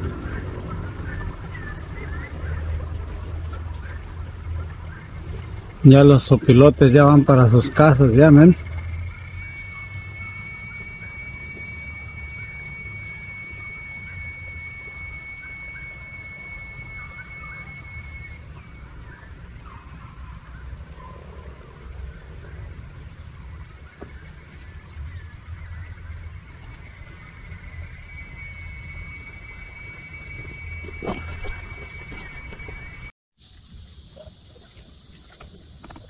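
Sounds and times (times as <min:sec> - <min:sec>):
low rumble: 0:00.0 - 0:06.5
high insect trill: 0:00.0 - 0:36.0
insects hissing: 0:00.0 - 0:36.0.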